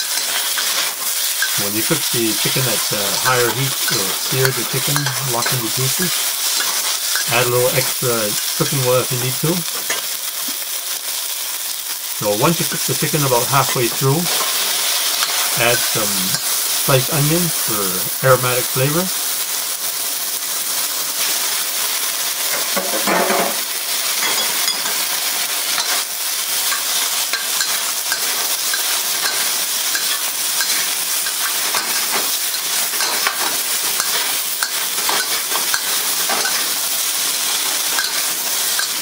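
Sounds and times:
metal utensils scraping a wok: 0.0 - 7.4, 26.7 - 36.8, 37.4 - 39.0
food sizzling in hot oil: 0.0 - 39.0.

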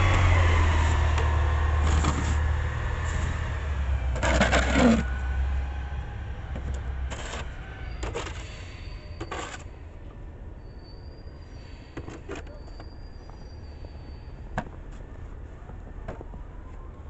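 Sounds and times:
truck engine hum: 0.0 - 9.2
shovel scraping concrete: 1.8 - 2.4, 4.1 - 5.1, 7.1 - 8.6, 9.2 - 9.7.

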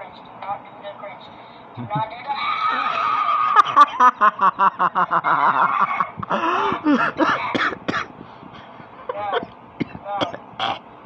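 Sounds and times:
person laughing hard: 3.0 - 7.5.

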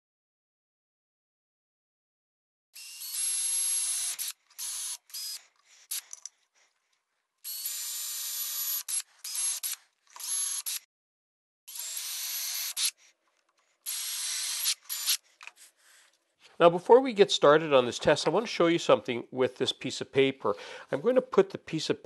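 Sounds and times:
cordless drill drilling: 2.8 - 6.3, 7.4 - 10.9, 11.7 - 13.0, 13.8 - 15.2.

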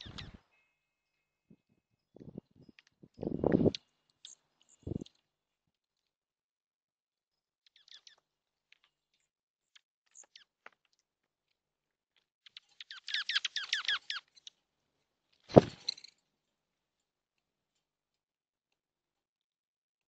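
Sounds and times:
songbird chirping: 0.0 - 5.2, 12.5 - 14.5
sharp thump: 15.5 - 15.8.

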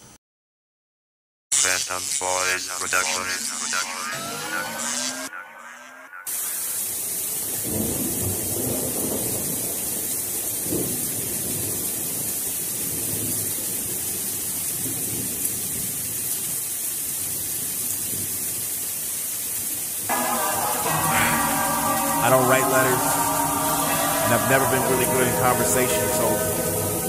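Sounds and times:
rain hiss: 6.3 - 27.0.

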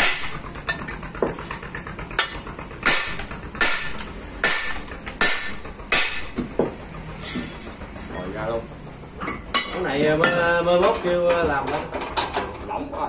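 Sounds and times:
metal pipe striking metal shaft: 0.0 - 1.4, 2.2 - 6.8.

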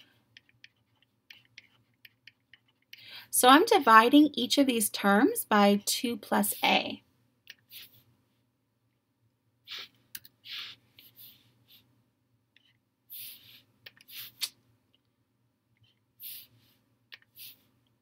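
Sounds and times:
stylus stroking tablet screen: 3.8 - 8.1, 9.6 - 12.0, 12.6 - 14.5, 15.8 - 18.0.

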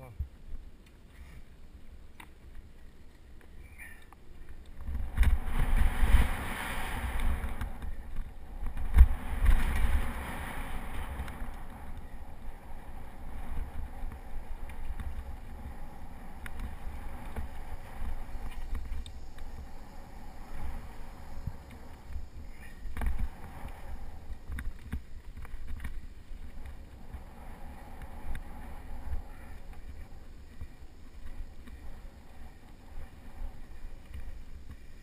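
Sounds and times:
bike tyres rumbling on dirt: 0.0 - 35.0
wind on microphone: 3.6 - 35.0.

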